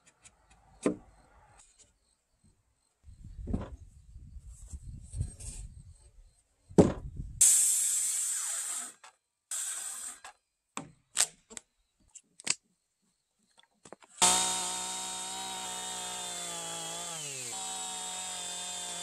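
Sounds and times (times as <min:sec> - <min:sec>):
thump: 0:06.8 - 0:07.1
circular saw cutting wood: 0:07.4 - 0:10.2, 0:14.2 - 0:19.0
chainsaw running: 0:14.2 - 0:19.0.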